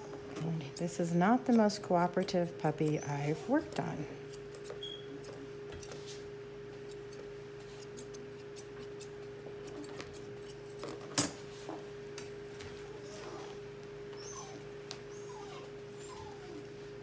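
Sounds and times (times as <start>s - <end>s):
steady low hum: 0.0s - 17.0s
shears snipping: 0.4s - 10.8s.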